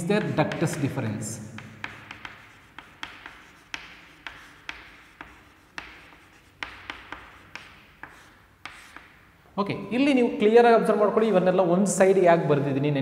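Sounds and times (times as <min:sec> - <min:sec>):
chalk tapping and scratching: 0:00.0 - 0:09.3.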